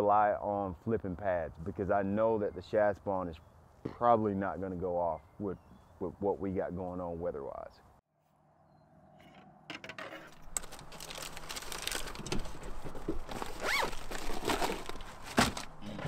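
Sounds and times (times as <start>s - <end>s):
fishing gear scraping and rustling: 10.2s - 16.0s.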